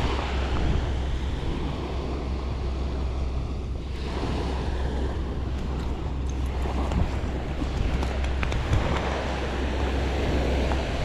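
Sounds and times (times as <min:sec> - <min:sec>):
ocean surf washing onto beach: 0:00.0 - 0:11.0
wind buffeting microphone: 0:00.0 - 0:11.0.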